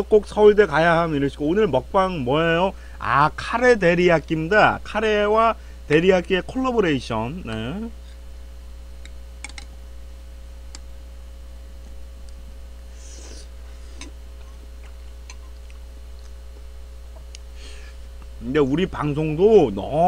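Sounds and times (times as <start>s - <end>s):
steady low hum: 0.0s - 20.0s
person chewing food: 13.0s - 18.4s.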